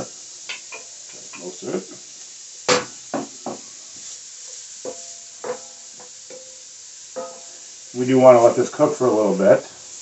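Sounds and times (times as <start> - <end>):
onion sizzling in oil: 0.0 - 10.0
wooden spatula knocking on pan: 2.7 - 3.7, 4.8 - 6.4.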